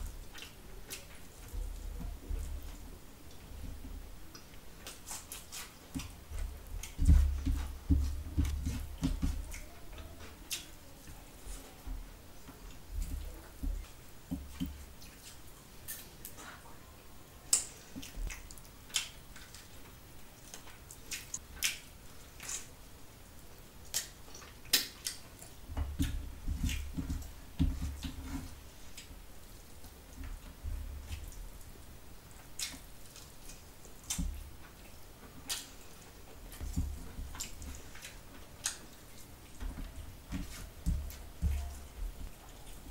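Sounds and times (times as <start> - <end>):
wet chewing and lip smacks: 17.5 - 22.7, 23.8 - 26.9, 32.4 - 36.7, 37.3 - 39.6.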